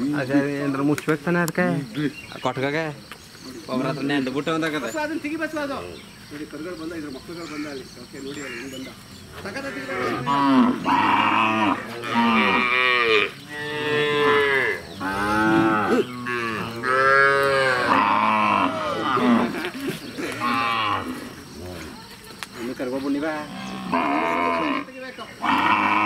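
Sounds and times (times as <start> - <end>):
cows mooing: 9.4 - 22.0, 23.2 - 26.0.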